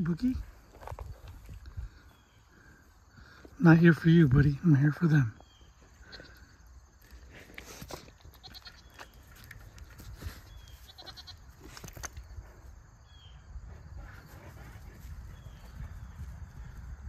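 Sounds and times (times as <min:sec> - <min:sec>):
goats bleating: 0:10.8 - 0:11.4.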